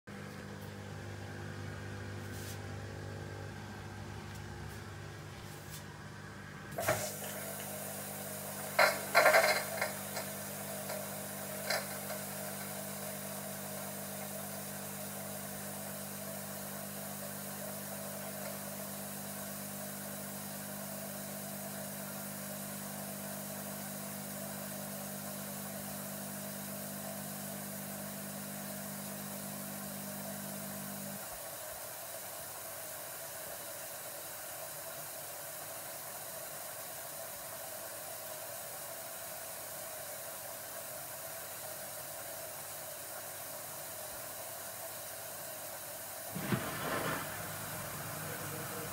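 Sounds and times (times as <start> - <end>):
dishwasher motor hum: 0.1 - 31.4, 46.4 - 48.9
water spraying hiss: 6.8 - 14.9, 46.2 - 48.9.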